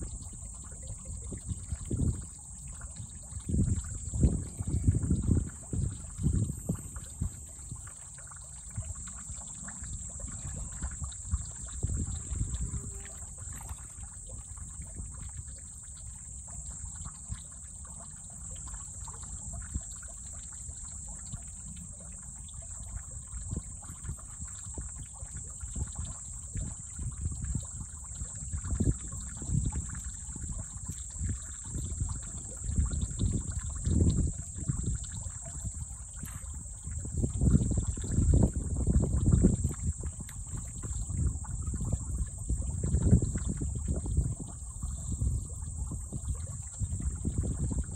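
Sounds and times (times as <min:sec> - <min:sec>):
pond water sloshing and splashing: 0:00.0 - 0:47.9
high insect drone: 0:09.4 - 0:14.1.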